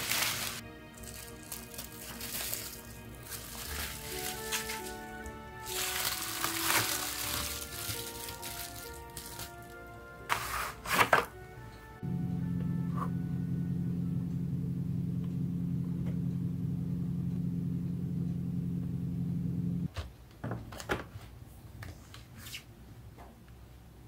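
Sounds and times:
steady low hum: 11.4 - 19.9.

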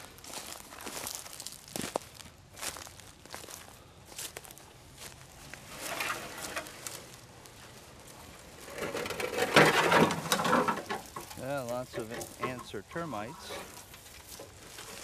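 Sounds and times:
dry leaves crackling: 0.0 - 15.0
metal sheet scraping on grass: 5.5 - 7.2, 8.3 - 15.0.

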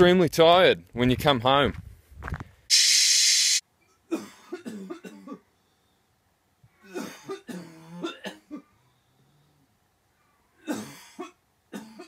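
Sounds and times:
man coughing harshly: 4.1 - 5.4, 6.9 - 8.7, 10.6 - 12.0.

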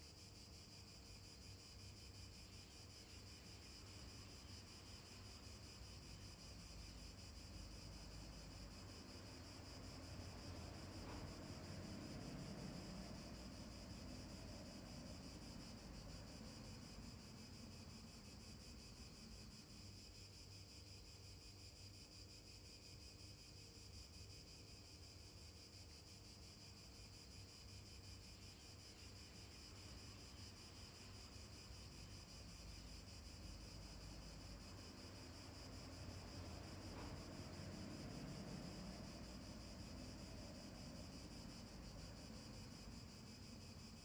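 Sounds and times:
faint outdoor hiss: 0.0 - 44.0.

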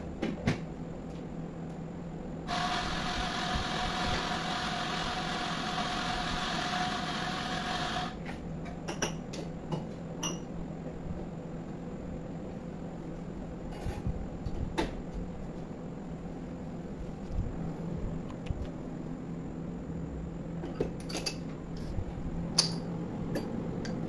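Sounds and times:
espresso machine whirring hiss: 2.5 - 8.2.

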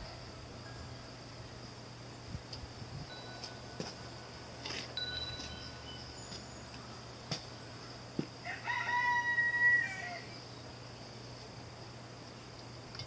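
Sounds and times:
rooster crowing: 8.4 - 10.4.

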